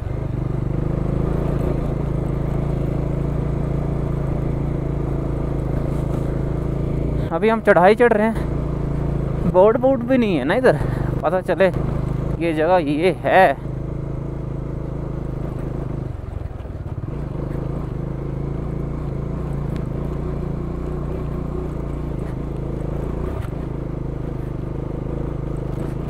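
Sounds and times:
motorcycle engine running under load: 0.0s - 26.0s.

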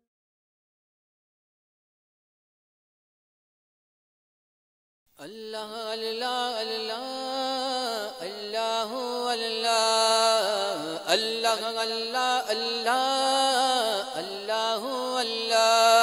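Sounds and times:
person singing wordless melody: 5.2s - 16.0s.

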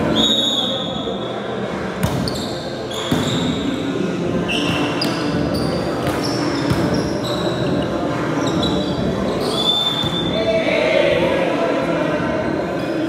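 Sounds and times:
reverberant gym background: 0.0s - 13.0s
sneakers squeaking on floor: 2.0s - 10.4s.

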